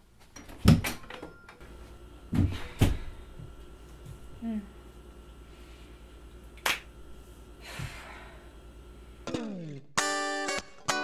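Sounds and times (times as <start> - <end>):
guitar slide and chords: 9.2 - 11.0.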